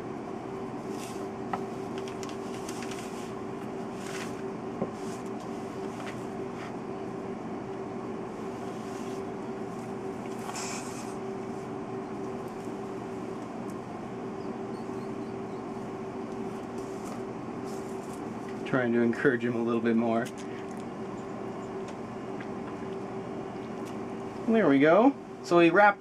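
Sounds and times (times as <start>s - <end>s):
steady machine hum: 0.0s - 26.0s
papery rustles: 0.9s - 6.2s.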